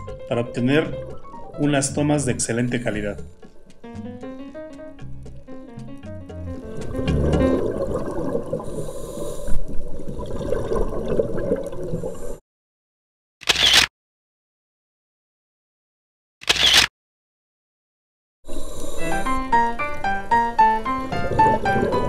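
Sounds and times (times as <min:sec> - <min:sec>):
muffled underwater gurgling: 0:06.6 - 0:12.4, 0:21.0 - 0:22.0
hissing bubble bursts: 0:06.8 - 0:12.4.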